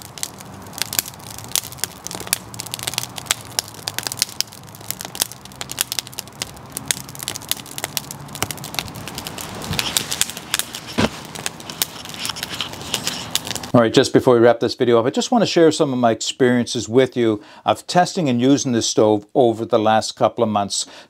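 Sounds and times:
wood fire crackling and popping: 0.0 - 13.8.

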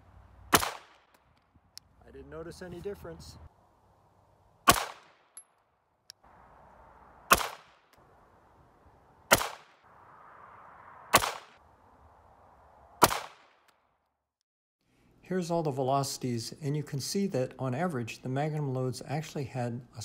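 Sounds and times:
pistol shots echoing: 0.5 - 1.1, 4.6 - 5.4, 7.3 - 7.8, 9.3 - 9.8, 13.0 - 13.5.

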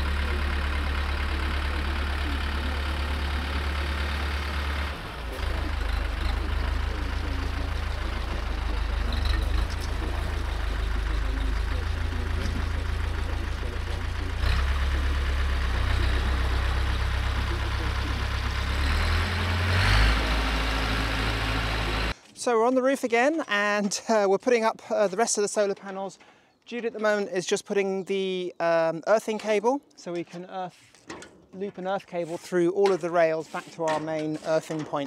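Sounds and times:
tractor engine idling: 0.0 - 22.2.

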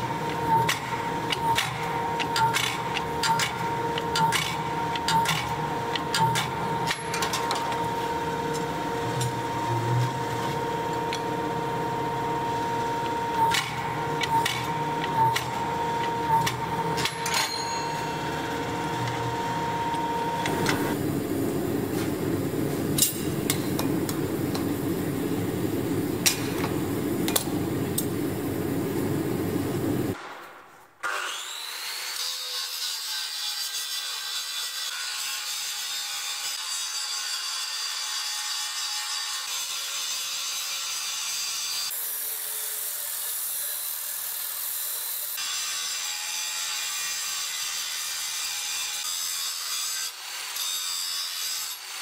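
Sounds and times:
machine high-pitched hum: 0.0 - 30.2.

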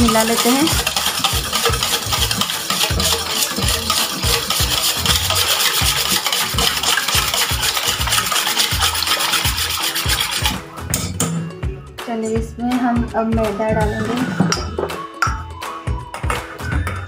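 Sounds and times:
wire whisk beating batter in metal bowl: 0.0 - 10.6.

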